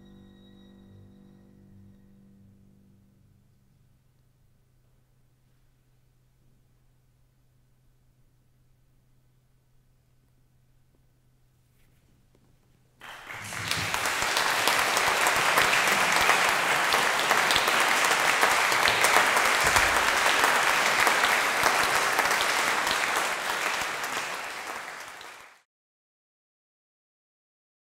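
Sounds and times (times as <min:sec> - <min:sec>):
audience applause: 0:13.0 - 0:25.6.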